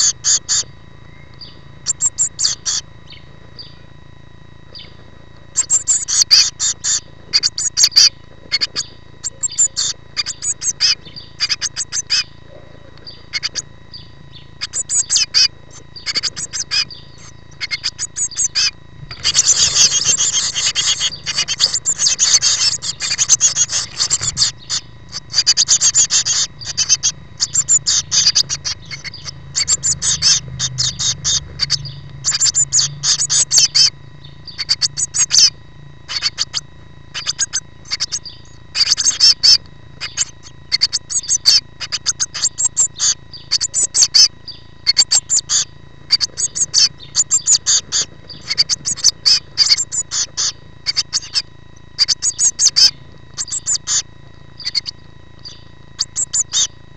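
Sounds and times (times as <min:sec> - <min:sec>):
nestlings begging chorus: 0:00.0 - 0:56.9
nestlings cheeping: 0:00.0 - 0:56.9.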